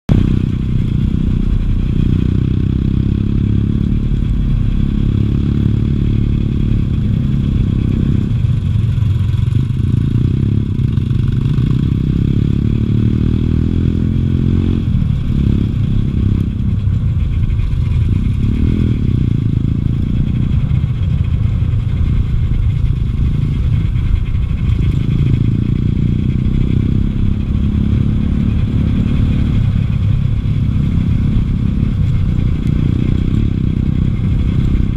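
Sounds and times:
dirt bike engine revving: 9.1 - 16.6.

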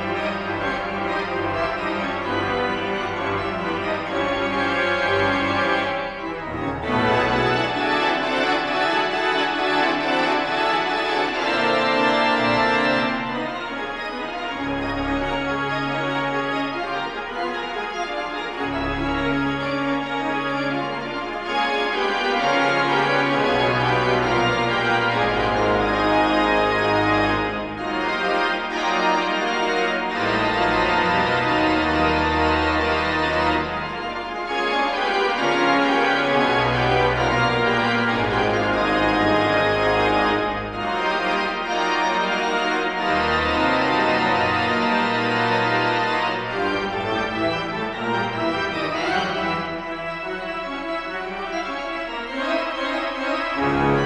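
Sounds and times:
pipe organ chords: 0.0 - 54.0.

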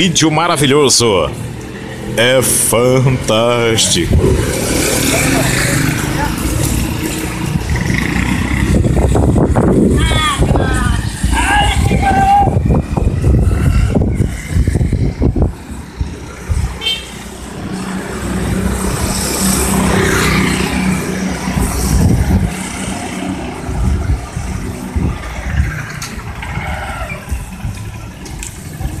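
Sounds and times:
small motorcycles riding past: 4.1 - 29.0
traffic hiss on wet road: 13.7 - 29.0.

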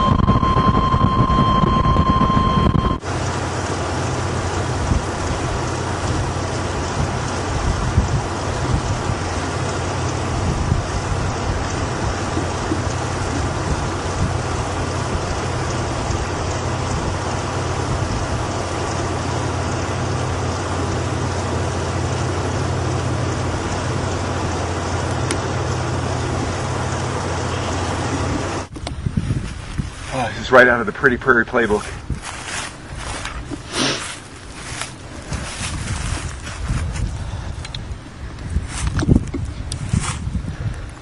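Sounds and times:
low steady drone: 0.0 - 28.7
rushing wind: 0.0 - 41.0.

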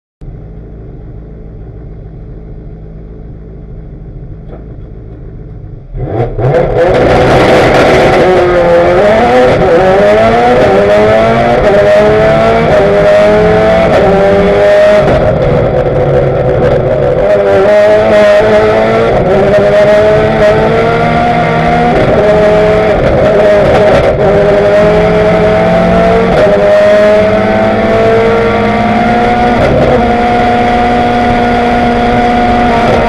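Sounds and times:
car engine idling: 0.2 - 6.0
race car engine revving: 5.8 - 33.0.

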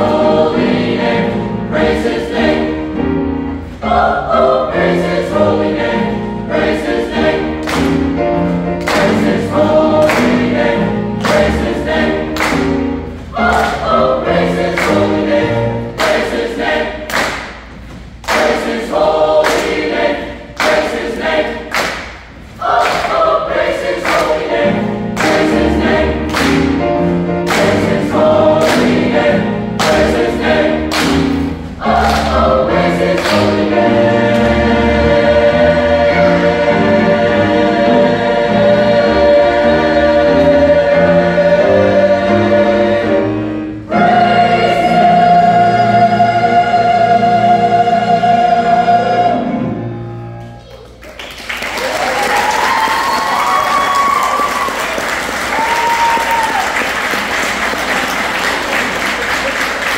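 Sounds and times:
mixed choir singing: 0.0 - 50.1
piano accompaniment: 0.0 - 59.9
singers clapping in time: 7.6 - 8.1, 8.8 - 9.4, 11.2 - 12.8, 15.9 - 24.6, 25.2 - 26.8, 27.5 - 29.2, 29.8 - 31.4, 32.0 - 32.5, 33.1 - 33.7, 50.8 - 59.9.

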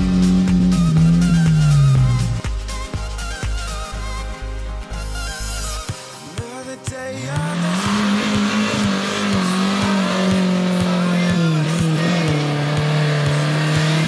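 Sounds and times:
off-road vehicle engine revving: 0.0 - 2.7, 7.1 - 14.0
mud spraying: 7.1 - 14.0.

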